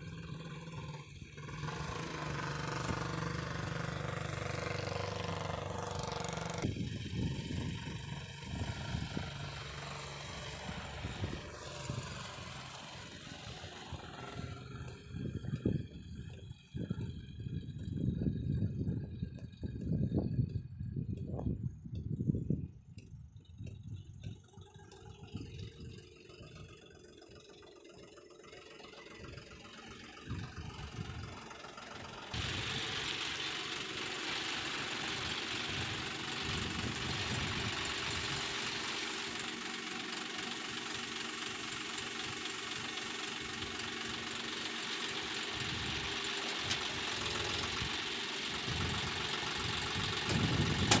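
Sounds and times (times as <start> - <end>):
engine hiss: 0.0 - 17.6, 24.4 - 51.0
tractor diesel engine running: 0.0 - 51.0.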